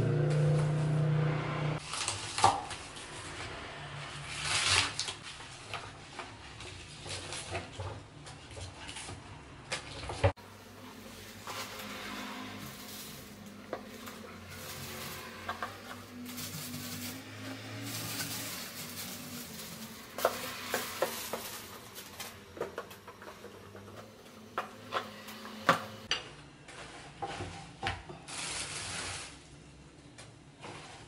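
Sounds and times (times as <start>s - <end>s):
plastic bags rustling: 9.9s - 26.0s, 26.6s - 29.9s.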